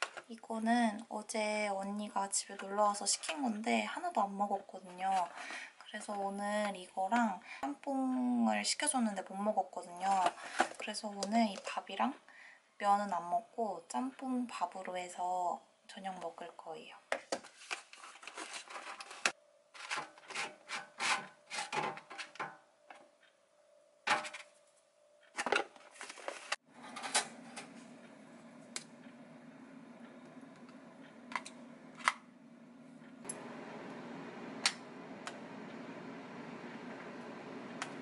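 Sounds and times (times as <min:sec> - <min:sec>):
food packaging rustling and crinkling: 0:17.4 - 0:22.4, 0:25.4 - 0:27.8
steady low hum: 0:26.7 - 0:38.0.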